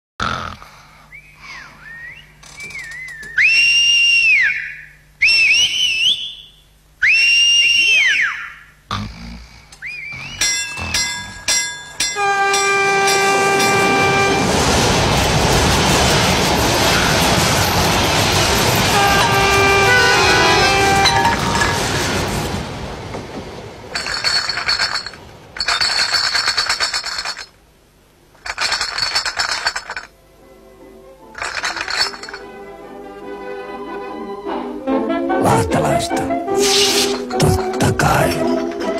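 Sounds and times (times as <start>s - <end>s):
men whistling with fingers: 1.1s - 6.4s, 9.8s - 10.7s
glass bottles rattling in crates: 10.4s - 14.2s, 17.4s - 21.9s, 23.9s - 27.6s, 28.4s - 30.1s, 31.4s - 32.5s, 37.0s - 38.9s.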